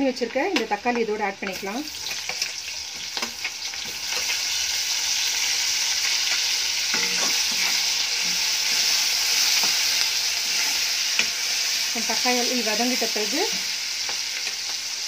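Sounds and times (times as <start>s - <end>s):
vegetables sizzling in hot oil: 0.0s - 15.0s
spoon scraping a pan: 0.6s - 4.6s, 5.4s - 11.9s.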